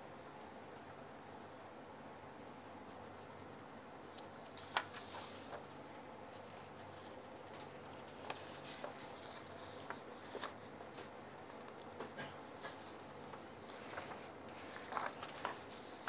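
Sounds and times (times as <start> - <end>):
low steady hum: 0.0 - 16.0
paper rustling and clicking: 4.1 - 16.0.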